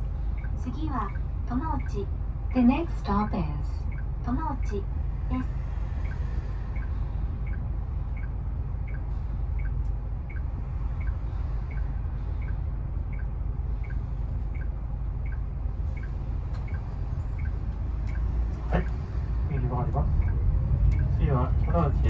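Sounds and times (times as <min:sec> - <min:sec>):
turn signal ticking: 0:00.0 - 0:03.0, 0:05.9 - 0:22.0
bus engine and road rumble: 0:00.0 - 0:22.0.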